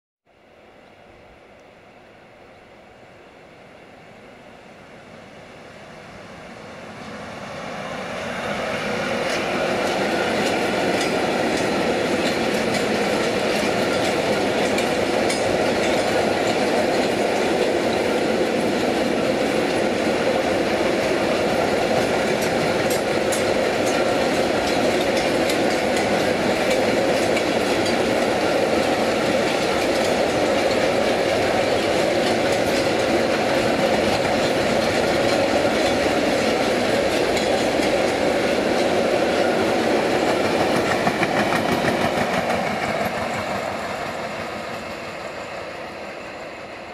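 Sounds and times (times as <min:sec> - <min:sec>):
freight train passing: 0:00.3 - 0:46.9
wheels clicking on rails: 0:08.8 - 0:45.4.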